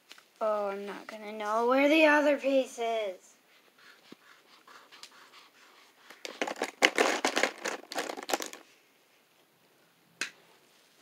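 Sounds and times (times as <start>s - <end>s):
marker scratching on paper: 3.7s - 6.4s.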